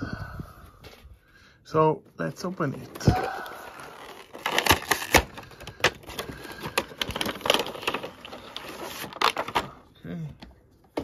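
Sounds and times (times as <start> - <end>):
cardboard scraping and rustling: 2.5 - 9.7.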